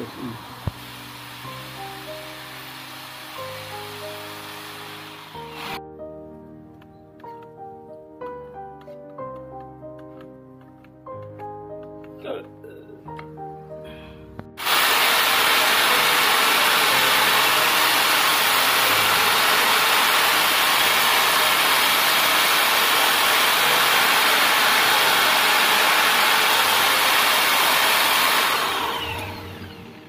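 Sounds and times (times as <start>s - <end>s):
drill motor spinning down: 0.0s - 5.8s, 14.6s - 30.0s
electric drill grinding steel: 0.0s - 5.8s, 14.6s - 30.0s.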